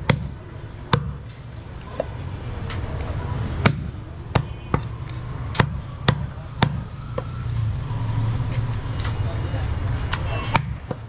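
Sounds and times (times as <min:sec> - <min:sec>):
cleaver chopping on wooden block: 0:00.0 - 0:01.3, 0:03.6 - 0:07.3.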